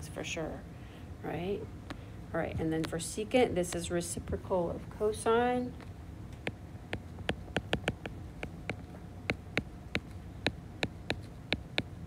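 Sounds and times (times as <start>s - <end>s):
stylus tapping on glass screen: 6.4s - 12.0s.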